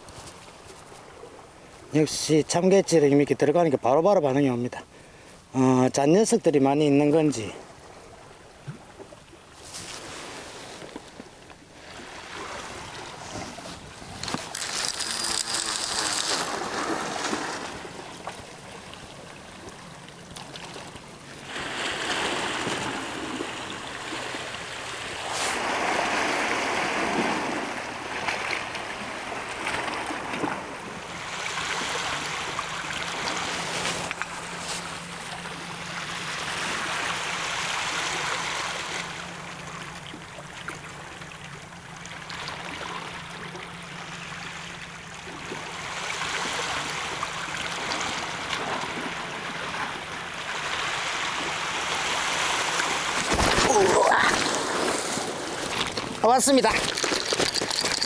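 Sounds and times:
waves splashing against rocks: 0:11.8 - 0:39.3, 0:45.9 - 0:58.0.

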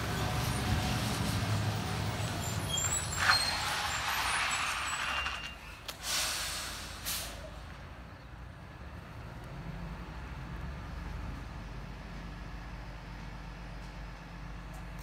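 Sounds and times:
air brakes hissing: 0:02.2 - 0:07.6.

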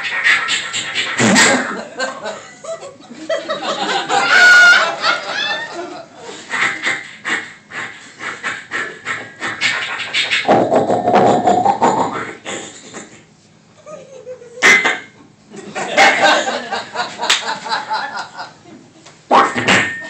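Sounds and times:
audience laughing: 0:01.2 - 0:07.0, 0:15.5 - 0:19.0
loud pitched vocal cry: 0:08.7 - 0:12.4
mouth sound effects into microphone: 0:10.2 - 0:12.5.

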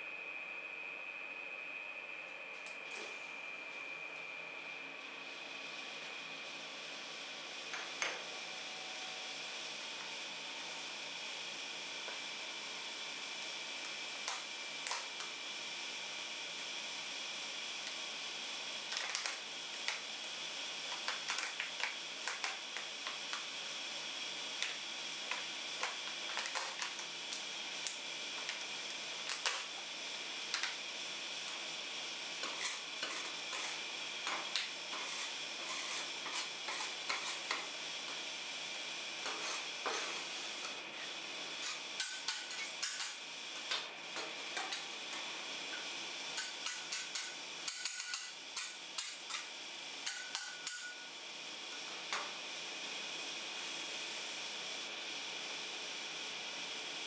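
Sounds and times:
metal spatula scraping metal: 0:32.4 - 0:37.7.

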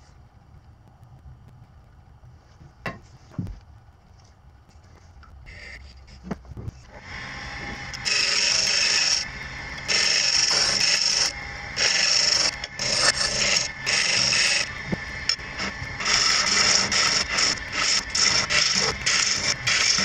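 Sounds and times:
lathe humming: 0:06.7 - 0:20.0
chisel scraping wood on lathe: 0:06.8 - 0:20.0.

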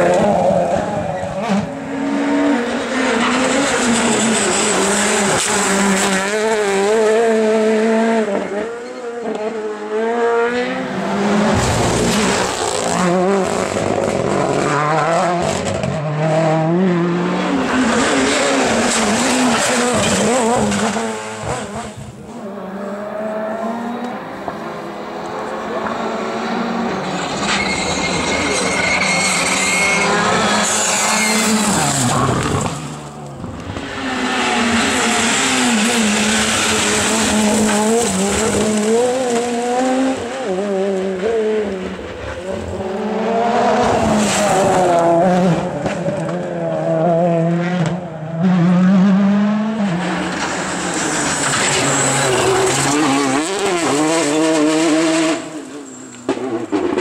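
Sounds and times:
rally car engines revving: 0:00.0 - 0:57.0
tyre squeal: 0:08.8 - 0:09.2, 0:26.9 - 0:33.1.

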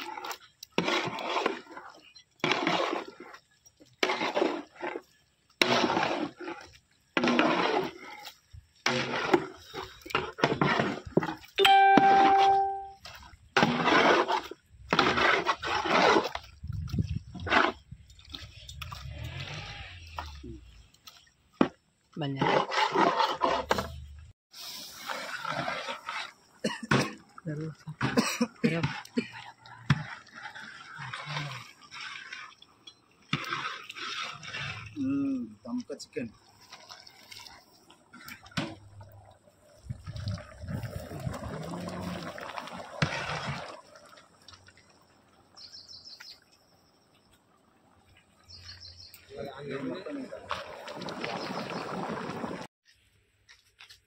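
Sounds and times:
metal ladle scraping a pot: 0:00.0 - 0:11.5, 0:12.3 - 0:16.5, 0:22.3 - 0:24.1, 0:28.6 - 0:35.0
gravy sloshing and pouring: 0:00.0 - 0:11.6, 0:13.0 - 0:23.8, 0:24.6 - 0:45.7, 0:47.8 - 0:52.7.

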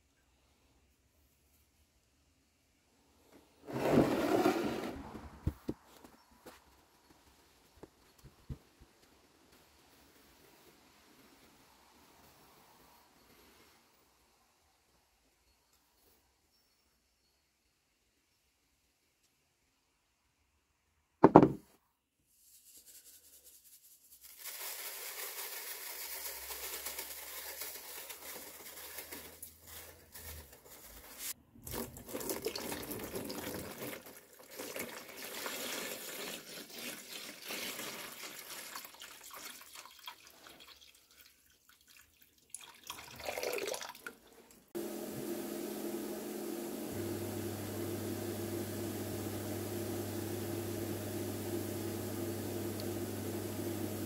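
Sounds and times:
sharp knock: 0:21.2 - 0:21.6
water pouring into plastic tub: 0:24.4 - 0:30.3, 0:31.6 - 0:44.8.

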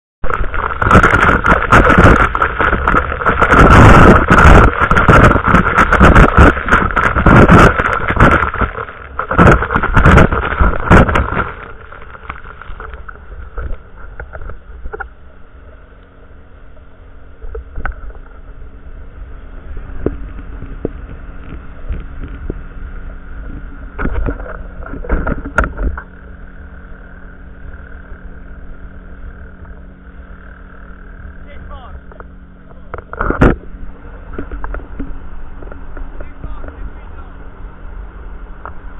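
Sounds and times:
hull slapping water: 0:00.2 - 0:15.0
wind on microphone: 0:00.2 - 0:15.1, 0:17.4 - 0:38.9
boat motor: 0:00.2 - 0:38.9.

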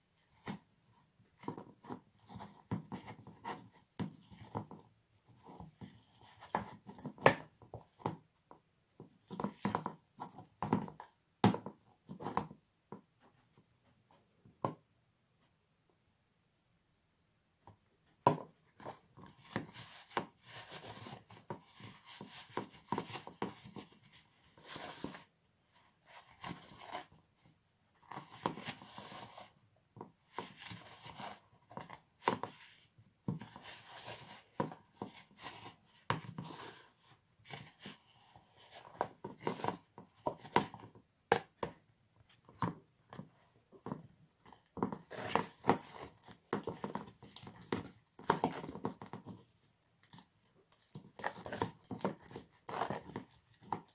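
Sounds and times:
spoon stirring slime in plastic bowl: 0:28.0 - 0:53.9.

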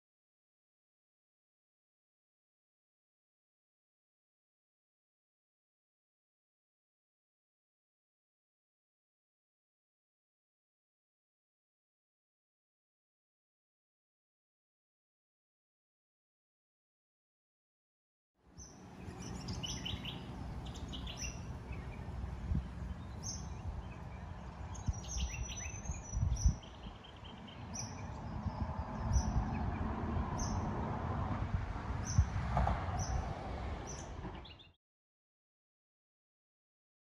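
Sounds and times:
birds chirping: 0:18.6 - 0:30.8, 0:33.0 - 0:34.8.

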